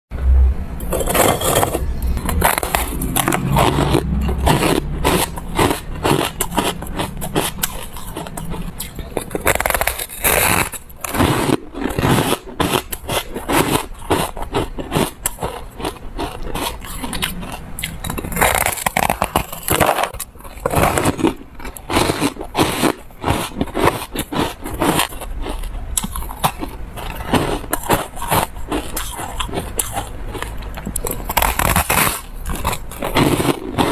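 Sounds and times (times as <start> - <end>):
ice being crunched and chewed: 0.8 - 33.9
ice scraping in plastic tub: 0.9 - 1.8, 9.4 - 17.2.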